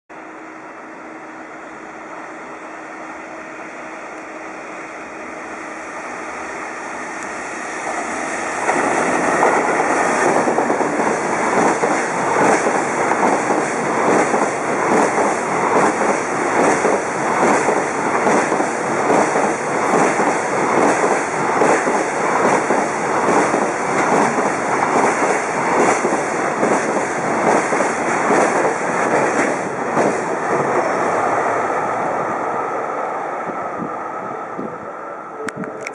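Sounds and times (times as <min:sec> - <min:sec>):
electric locomotive passing: 0:00.2 - 0:35.9
train wheels clattering over rail joints: 0:07.8 - 0:30.8.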